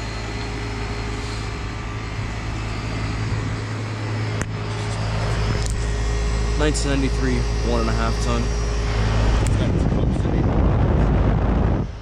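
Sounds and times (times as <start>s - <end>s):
compressor low hum: 0.0s - 12.0s
fan air noise: 0.0s - 12.0s.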